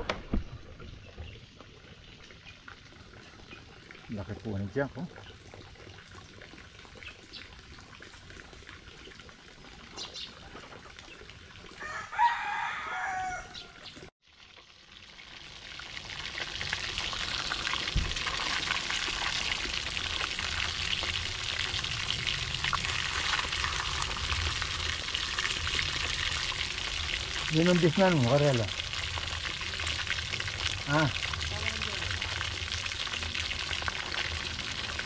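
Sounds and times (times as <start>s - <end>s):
rooster crowing: 11.8s - 13.8s
fish sizzling in oil: 14.2s - 35.0s.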